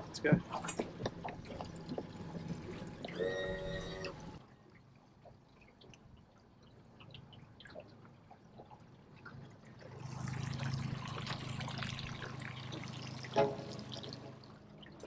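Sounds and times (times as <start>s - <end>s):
outboard motor humming: 0.0s - 4.5s, 9.6s - 15.0s.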